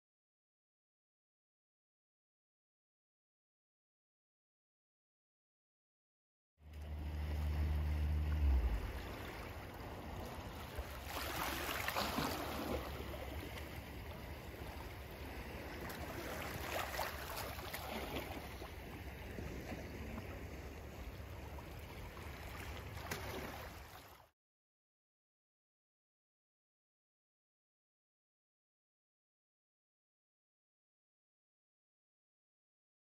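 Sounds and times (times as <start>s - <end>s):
low hum: 6.6s - 10.9s
small waves lapping on shore: 6.6s - 24.3s
steady low rumble: 6.7s - 11.0s.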